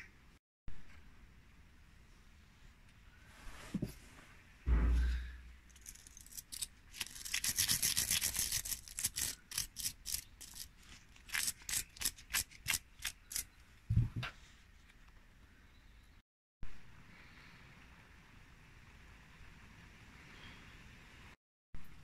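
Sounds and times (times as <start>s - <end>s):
dull low knock: 4.7s - 5.5s.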